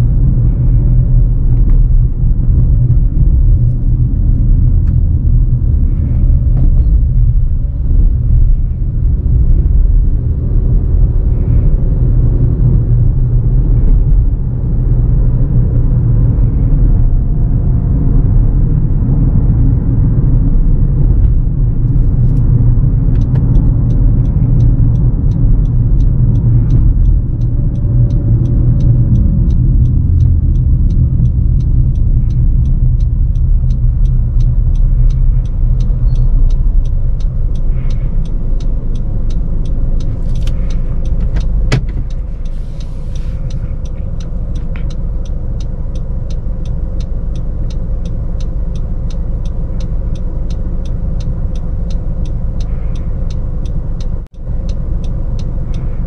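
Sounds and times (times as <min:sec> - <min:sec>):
car cabin rumble and road noise: 0:00.0 - 0:56.0
faint steady ticking: 0:21.0 - 0:56.0.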